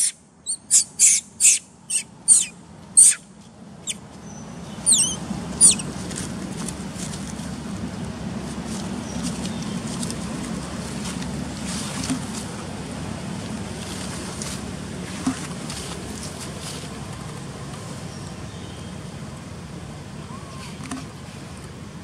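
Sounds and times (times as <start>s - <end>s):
low outdoor rumble: 0.0s - 22.0s
rustles and crackles: 5.2s - 18.4s.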